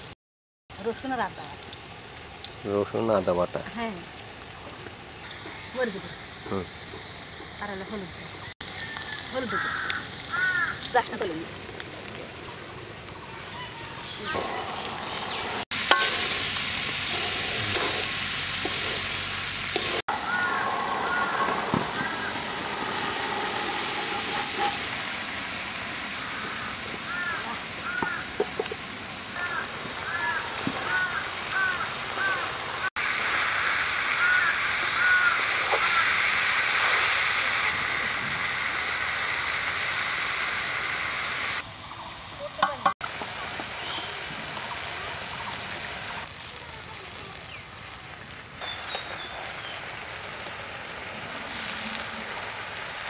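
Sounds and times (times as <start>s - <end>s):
food sizzling in hot oil: 0.7s - 53.0s.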